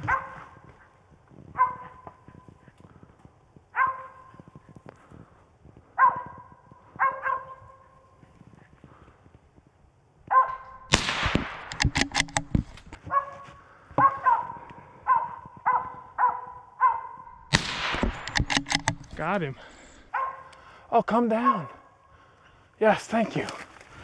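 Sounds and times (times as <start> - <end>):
dog barking: 0.0 - 0.6, 1.6 - 2.4, 3.7 - 4.4, 6.0 - 7.9, 10.3 - 10.8, 13.0 - 17.3, 20.1 - 20.5
sharp gunshot: 10.9 - 12.5, 17.5 - 19.0.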